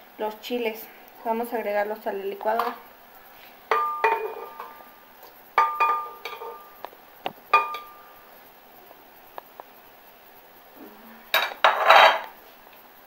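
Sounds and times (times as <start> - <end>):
glass jar knocking and ringing: 3.7 - 4.7, 5.6 - 6.7, 7.5 - 8.0.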